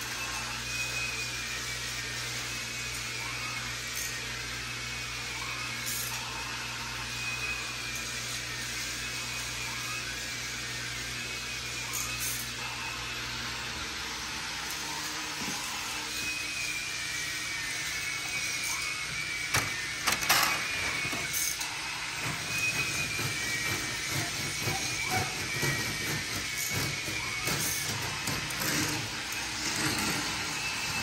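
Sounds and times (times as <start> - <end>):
toy motors whirring: 0.0 - 31.0
toy train clattering: 19.5 - 31.0.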